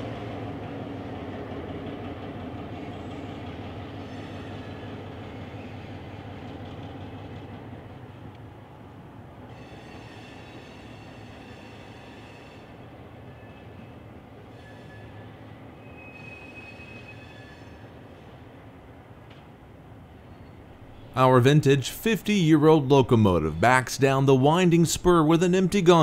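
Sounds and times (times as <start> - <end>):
diesel locomotive rumbling: 0.0 - 26.0
wheel flanges squealing on rail: 2.8 - 6.4, 9.5 - 18.3, 20.2 - 21.2.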